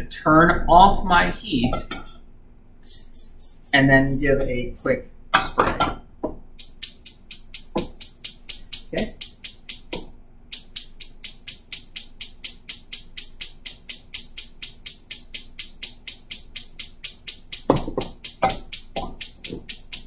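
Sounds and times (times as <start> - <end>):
gas range spark igniter clicking: 6.6 - 20.0.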